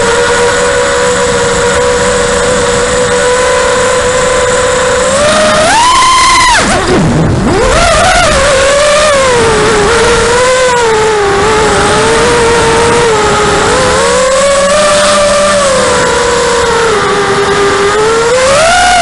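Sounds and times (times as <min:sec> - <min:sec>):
quadcopter motors whining: 0:00.0 - 0:19.0.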